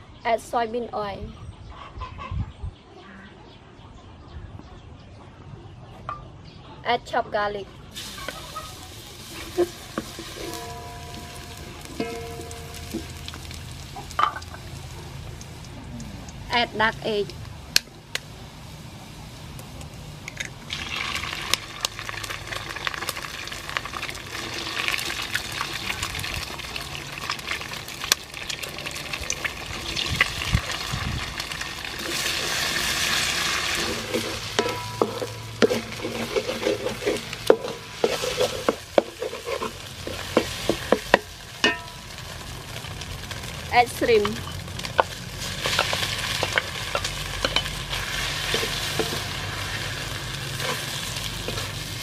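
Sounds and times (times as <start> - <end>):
eggs sizzling in oil: 7.9 - 52.0
wooden spatula scraping wok: 8.0 - 14.2, 32.0 - 41.9, 43.4 - 52.0.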